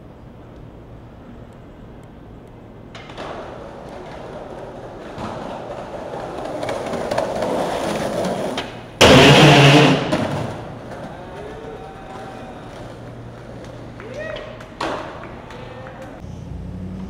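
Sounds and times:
skateboard wheels rolling on concrete: 0:00.0 - 0:17.0
sudden loud burst of noise: 0:09.0 - 0:10.8.

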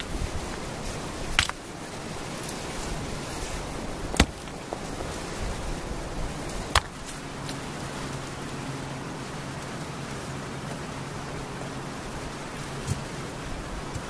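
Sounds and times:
water trickling over stones: 0:00.0 - 0:14.0.

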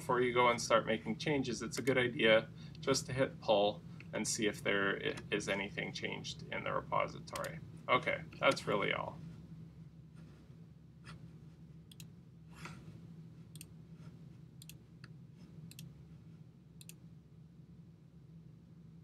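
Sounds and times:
steady low hum: 0:00.0 - 0:19.0
computer mouse clicks: 0:11.9 - 0:12.1, 0:14.6 - 0:15.9, 0:16.8 - 0:17.0.

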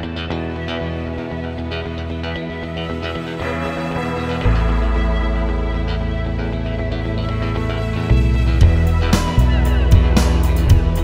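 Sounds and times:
music with held tones: 0:00.0 - 0:11.0
heavy bass line and beat: 0:07.6 - 0:11.0.

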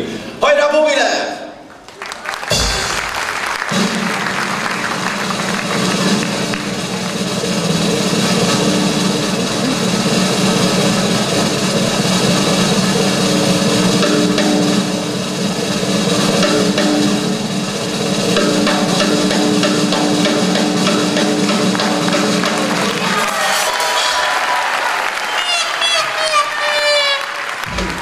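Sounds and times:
music with drums and percussion: 0:02.4 - 0:23.8.

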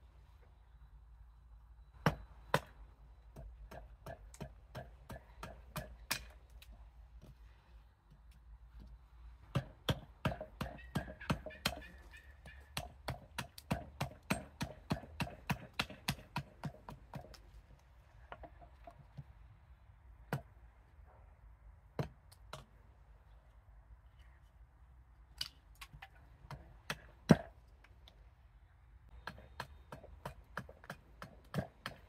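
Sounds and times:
axe chopping wood: 0:03.3 - 0:06.4, 0:09.5 - 0:17.4, 0:21.9 - 0:22.7, 0:26.5 - 0:27.6, 0:29.2 - 0:32.0.

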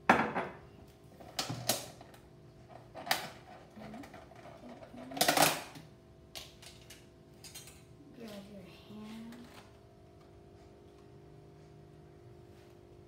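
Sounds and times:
faint steady hum: 0:00.0 - 0:13.0
utensils clacking and rattling: 0:06.4 - 0:07.9.

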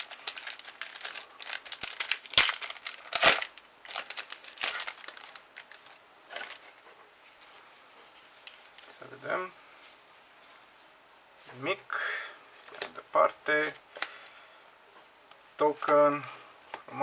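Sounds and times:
foil pack tearing and crinkling: 0:00.0 - 0:06.6.

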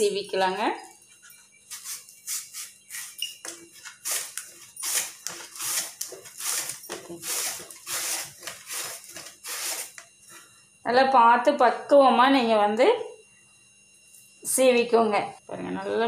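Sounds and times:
rasping slicer strokes: 0:04.0 - 0:10.0.

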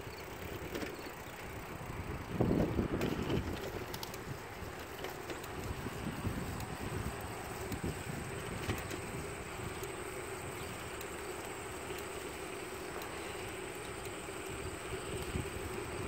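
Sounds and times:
wind on microphone: 0:01.8 - 0:10.8, 0:14.5 - 0:16.0.

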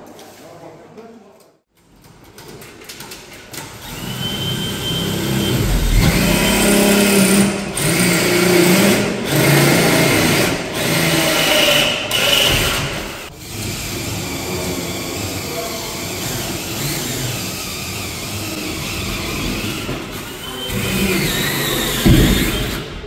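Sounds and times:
power drill whining: 0:03.7 - 0:13.3.

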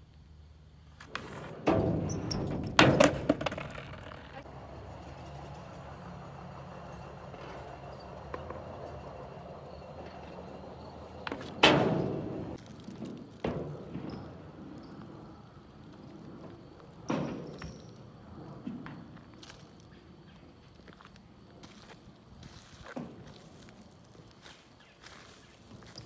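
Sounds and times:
skateboard rumble: 0:00.8 - 0:17.1
skateboard knocking on a ramp: 0:01.1 - 0:04.4.

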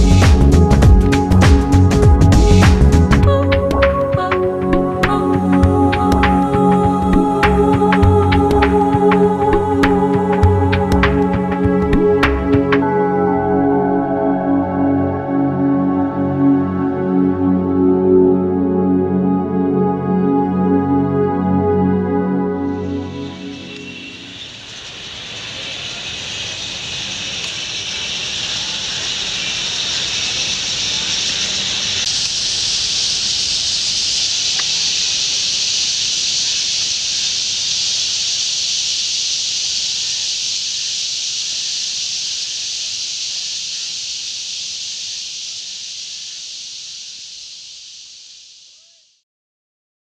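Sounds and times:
flock of starlings chattering: 0:23.3 - 0:44.0.

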